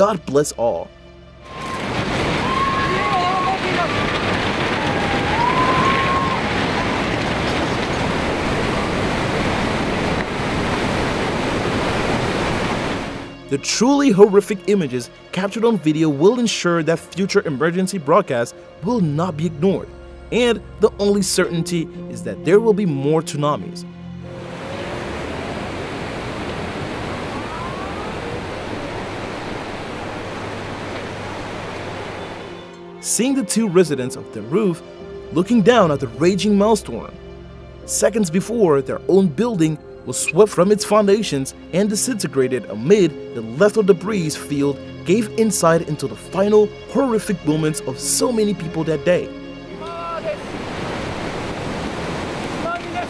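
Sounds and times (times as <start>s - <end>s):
churning water rushing: 1.4s - 14.7s, 24.2s - 33.4s, 49.7s - 53.0s
faint rising wails: 24.3s - 32.7s.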